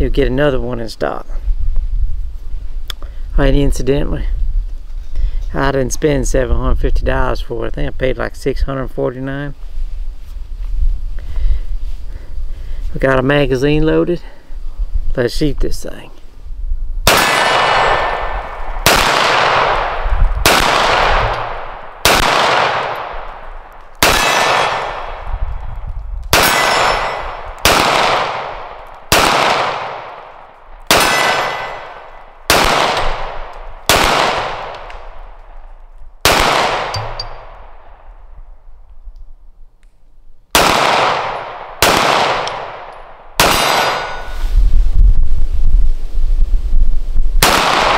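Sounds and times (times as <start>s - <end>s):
pistol shots with ringing decay: 17.0s - 25.3s, 26.3s - 35.2s, 36.2s - 38.1s, 40.5s - 44.4s, 47.4s - 47.9s.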